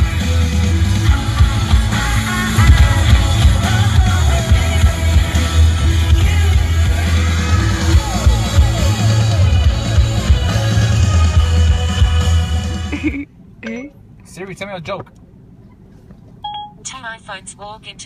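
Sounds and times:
heavy bass line: 0.0s - 12.9s
rock music with singing: 0.0s - 12.9s.

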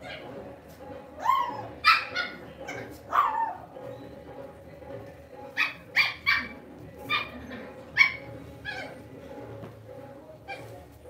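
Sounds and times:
puppies yipping: 1.2s - 3.7s, 5.6s - 9.0s.

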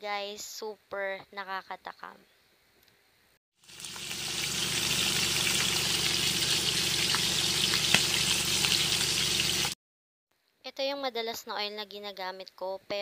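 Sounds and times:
meat sizzling in hot oil: 3.6s - 9.8s
crackling oil pops: 7.1s - 8.2s.

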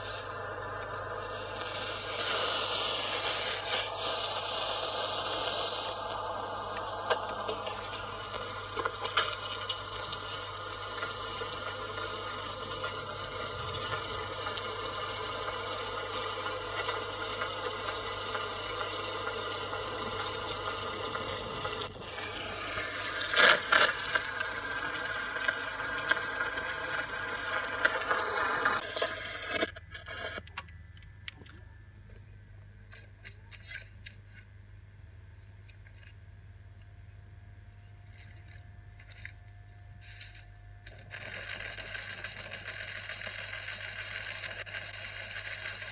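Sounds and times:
faint steady tones: 0.0s - 28.0s.

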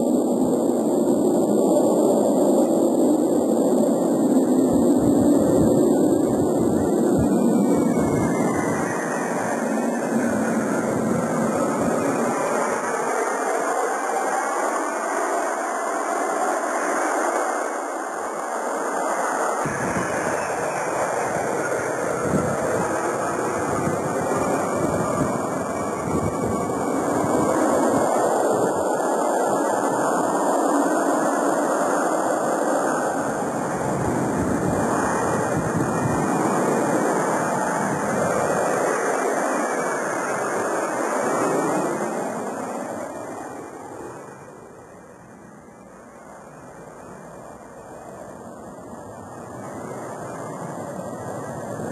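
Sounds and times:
jet taking off: 0.0s - 51.9s.

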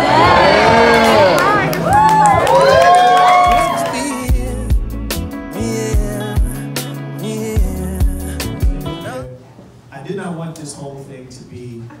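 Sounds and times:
steady drum beat: 0.0s - 2.8s, 3.4s - 5.3s
held bass line: 0.0s - 9.3s.

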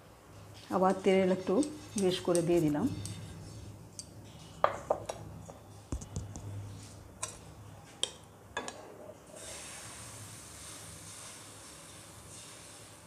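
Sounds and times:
batter sizzling on hot griddle: 9.4s - 13.0s.

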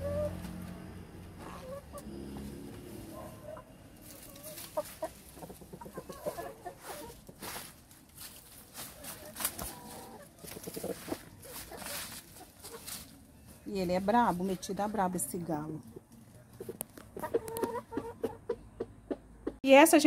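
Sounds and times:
chickens clucking: 0.0s - 19.6s
rustling: 4.0s - 14.4s.

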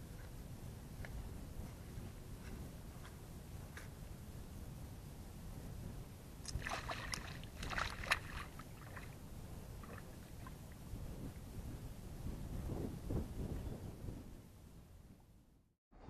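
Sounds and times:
wind rumble on microphone: 0.0s - 15.6s
fish splashing and flapping: 6.5s - 9.2s.

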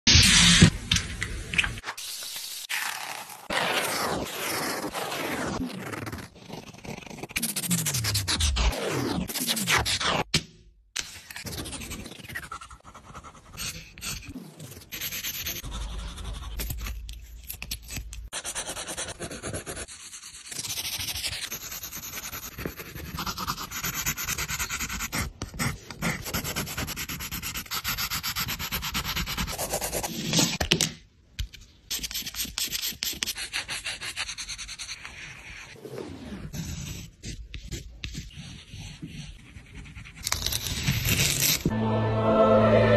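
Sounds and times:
pencils scratching on paper: 3.6s - 8.8s, 11.3s - 30.6s, 31.9s - 41.7s.

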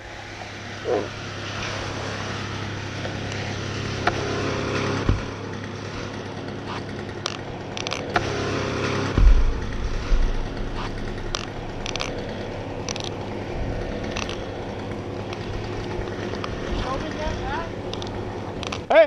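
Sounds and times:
chainsaw idling: 0.0s - 19.0s
log thudding onto lawn: 9.1s - 13.2s
log thumping as it settles: 9.1s - 13.2s.

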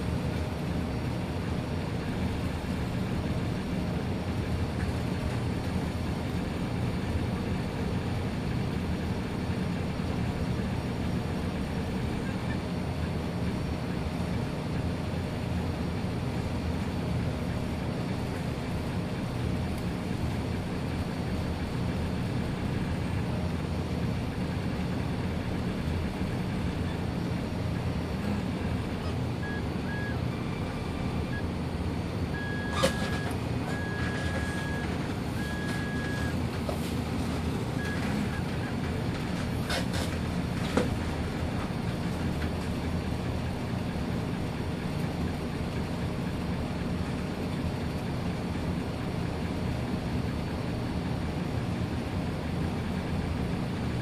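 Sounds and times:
cooling fan humming: 0.0s - 54.0s
stepper motors driving: 25.6s - 42.6s.

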